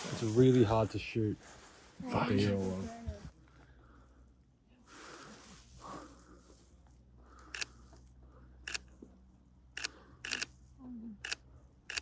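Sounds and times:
soft rustle: 0.0 - 9.6
camera shutter clicking: 9.8 - 10.5, 11.2 - 12.0.

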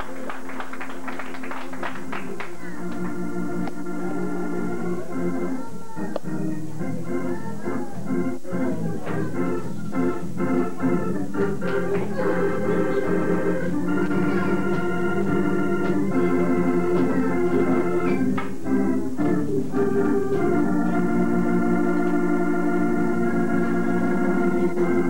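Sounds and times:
organ playing sustained chords: 0.0 - 25.0.

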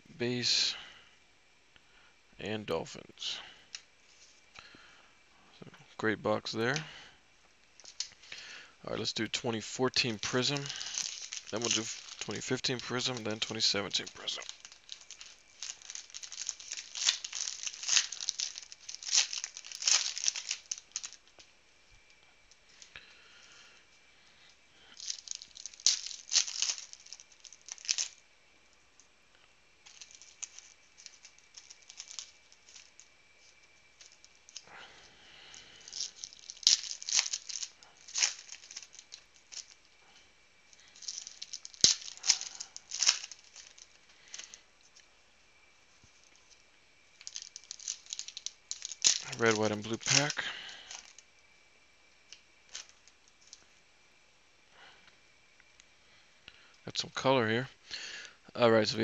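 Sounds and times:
foil packs crinkling: 7.8 - 28.2, 29.8 - 45.1, 46.1 - 51.2, 52.3 - 53.7
plastic wrap tearing: 10.0 - 21.3, 25.0 - 28.2, 29.9 - 33.1, 35.8 - 39.8, 40.8 - 44.6, 47.2 - 51.2.

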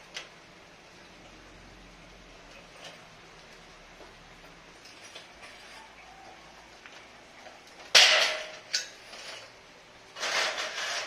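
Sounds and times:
metal channels clattering: 7.0 - 11.0
loud metallic rattle: 7.9 - 9.4.

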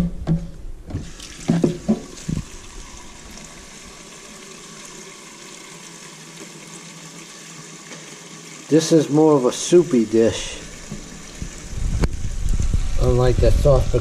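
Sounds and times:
knocks on plastic pitcher: 0.2 - 2.5
faucet water rushing: 1.0 - 14.0.

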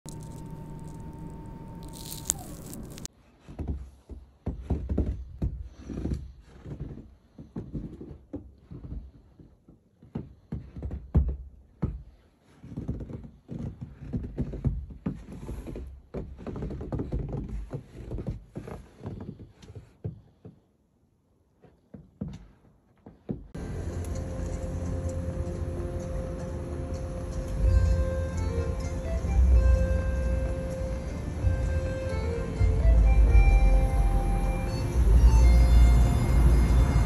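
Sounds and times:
aircraft drone: 23.6 - 37.0.

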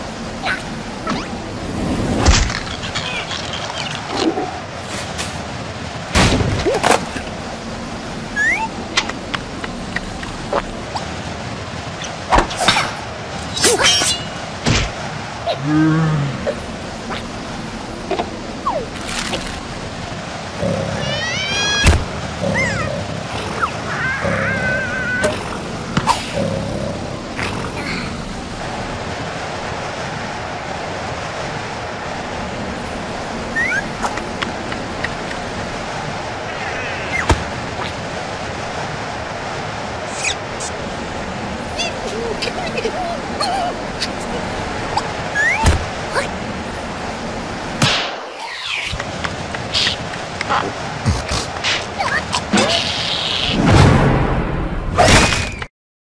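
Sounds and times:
steady windy hiss: 0.0 - 54.9
squeaky creature cries: 20.9 - 21.9, 23.6 - 25.3, 52.0 - 53.6.

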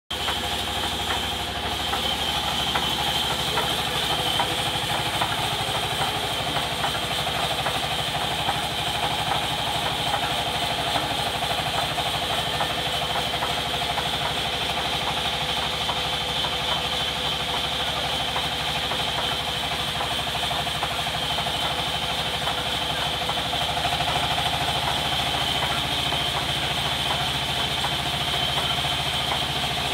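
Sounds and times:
low mechanical drone: 0.1 - 13.4
high saw whine: 0.1 - 13.5
band saw cutting wood: 0.1 - 15.1, 20.8 - 29.9.

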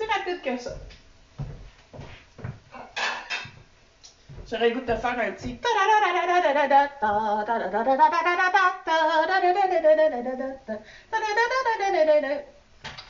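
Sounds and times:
woman singing wordless tune: 0.0 - 0.9, 4.4 - 12.6.

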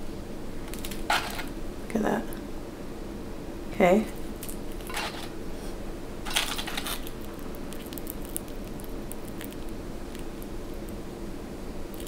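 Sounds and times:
fried food crackling when handled: 4.3 - 5.3, 6.3 - 11.0.

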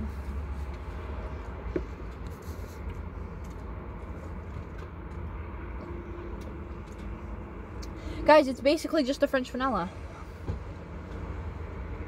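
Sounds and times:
car cabin engine rumble: 0.0 - 12.0.

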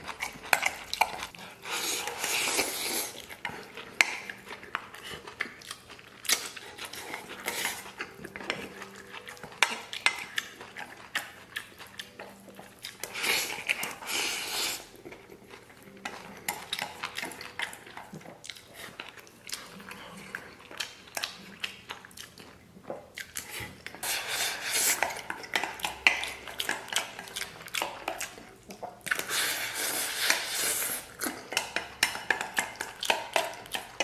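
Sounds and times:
slurping: 0.1 - 11.8, 12.8 - 15.1, 23.2 - 34.0.

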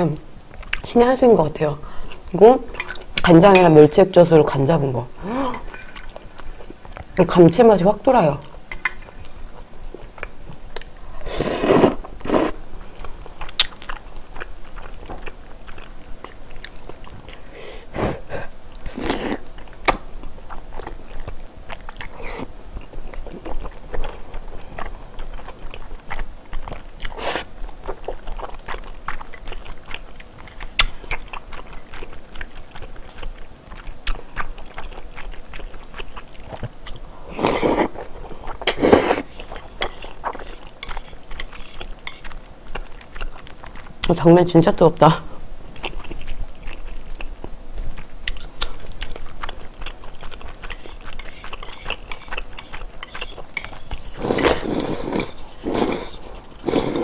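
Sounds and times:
wet chewing and mouth clicks: 0.5 - 0.9, 8.4 - 17.5, 18.4 - 44.4, 45.7 - 57.0
slurping noodles: 11.2 - 12.6, 18.9 - 19.5, 37.2 - 38.0, 38.6 - 42.2, 50.6 - 57.0.

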